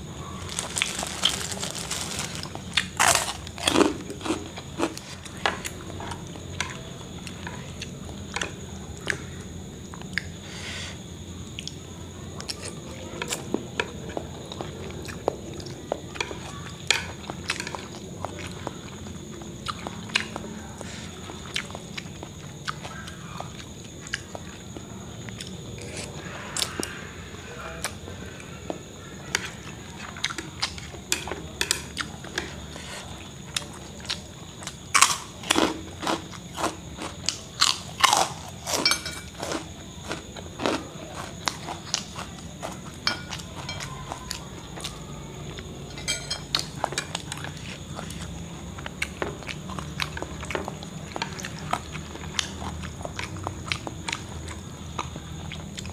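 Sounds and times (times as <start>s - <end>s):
chewing and slurping noodles: 0.4s - 5.8s.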